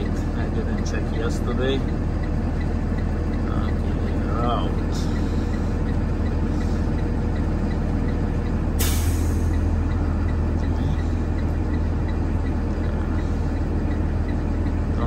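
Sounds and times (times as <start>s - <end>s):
diesel engine idling: 0.0s - 15.0s
light regular ticking: 0.0s - 15.0s
air brake hiss: 8.8s - 9.5s.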